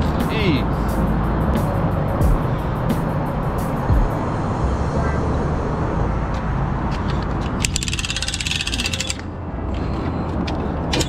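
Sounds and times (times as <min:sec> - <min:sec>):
steady low rumble: 0:00.0 - 0:07.8
ratchet clicking rapidly: 0:07.5 - 0:09.3.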